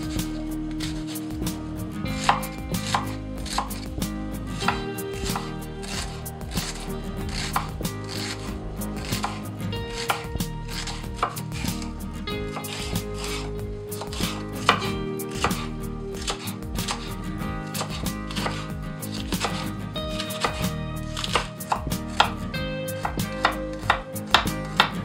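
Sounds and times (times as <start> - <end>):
knife chopping on wooden board: 2.2 - 3.8, 4.6 - 8.4, 9.0 - 11.8, 12.6 - 17.1, 17.7 - 19.6, 23.0 - 25.0.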